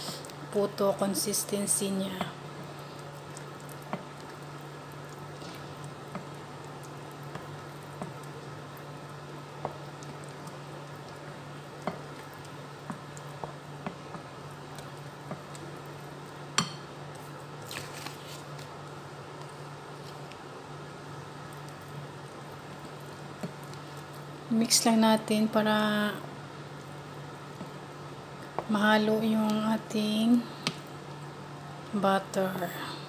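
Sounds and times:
steady low hum: 0.0 - 33.0
wet batter squishing: 1.0 - 24.9.

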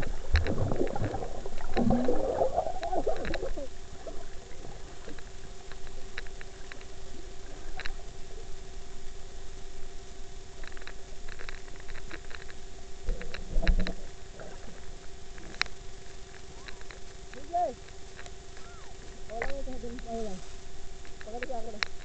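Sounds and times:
bubbly churning water: 0.0 - 8.6
muffled underwater hum: 0.0 - 22.0.

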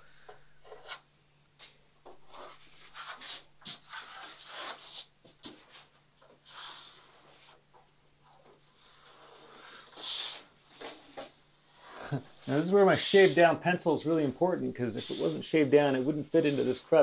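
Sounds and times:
pencil scratching on wood: 0.6 - 1.0
hands rubbing over wood: 10.0 - 13.7, 14.8 - 17.0.

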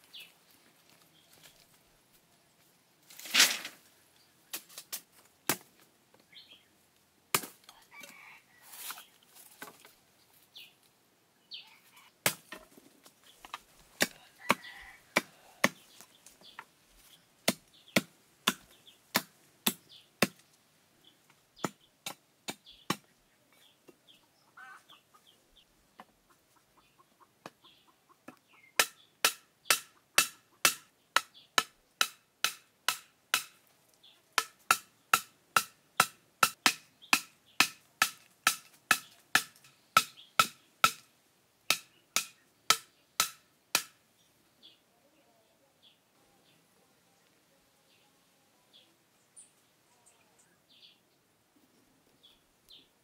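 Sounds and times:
tool chopping wood: 5.5 - 5.7, 7.3 - 7.6, 12.2 - 12.8, 14.0 - 15.9, 17.4 - 20.4, 21.6 - 23.1, 28.8 - 33.6, 34.4 - 41.1, 41.7 - 44.0.

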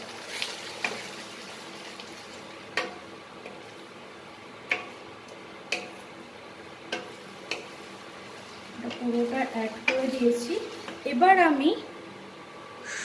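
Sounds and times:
paste sizzling in hot oil: 0.0 - 2.8
spatula knocking against pan: 2.7 - 3.6, 6.9 - 7.7.

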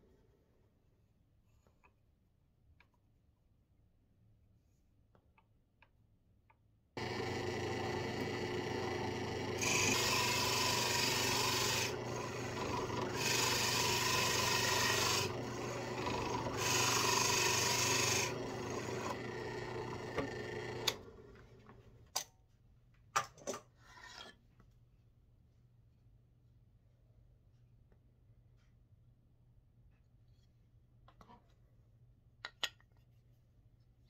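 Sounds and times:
drill press boring into wood: 7.0 - 21.5.

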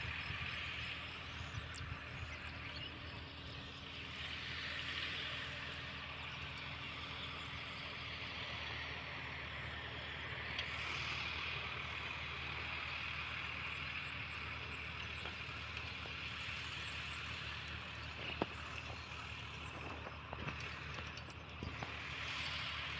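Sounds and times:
low engine hum: 0.0 - 22.9.

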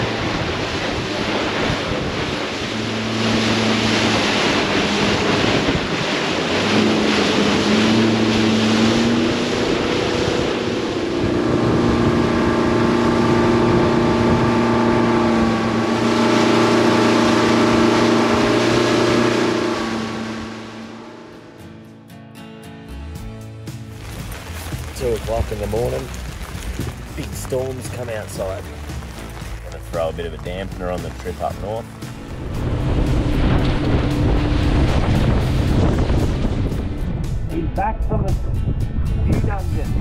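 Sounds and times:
wind buffeting microphone: 0.0 - 21.1, 24.2 - 40.0
water rushing past hull: 0.0 - 21.8, 23.6 - 38.2
outboard motor running: 0.0 - 22.1, 23.1 - 37.9.

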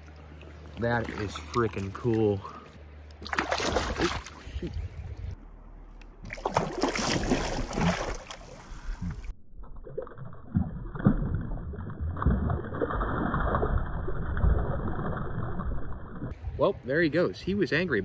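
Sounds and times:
fish thrashing in water: 3.2 - 4.4, 6.2 - 16.2
water splashing around net: 3.2 - 4.4, 6.2 - 9.2.

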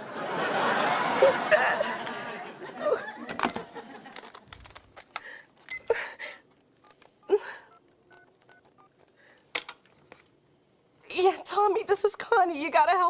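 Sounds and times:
telephone keypad beeps: 5.7 - 6.0, 6.8 - 8.9.

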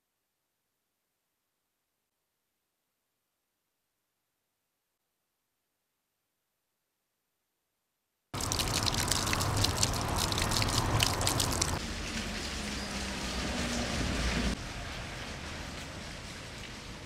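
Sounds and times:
steady wash of water: 8.4 - 14.6
water dripping and splashing: 8.4 - 17.0.

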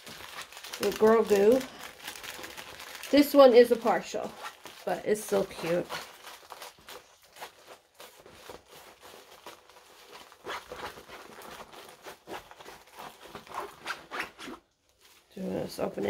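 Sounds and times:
packaging crinkling and rustling: 0.0 - 15.9.

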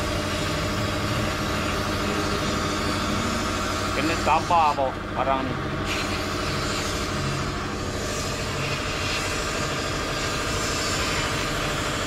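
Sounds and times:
low motor drone: 0.0 - 12.0
sandblast hiss of air and grit: 5.8 - 12.0.

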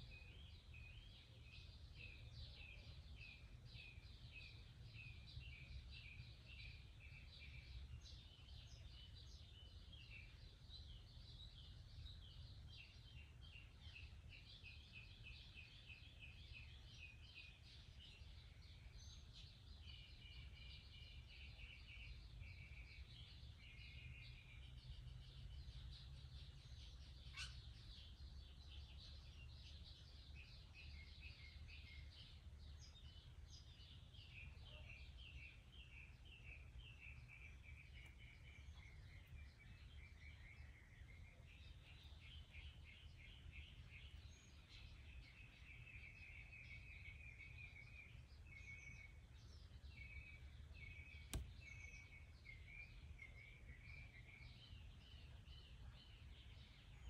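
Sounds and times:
small birds chirping: 0.0 - 57.0
sharp click: 51.2 - 51.7.

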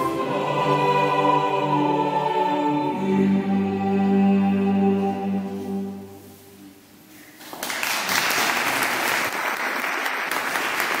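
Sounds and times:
choir and strings chord: 0.0 - 6.8
audience applause: 7.5 - 11.0.

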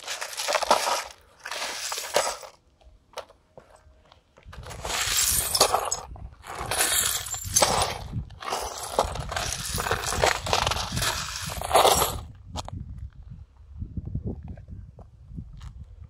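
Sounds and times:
broken plastic crunching and clinking: 0.0 - 2.6.

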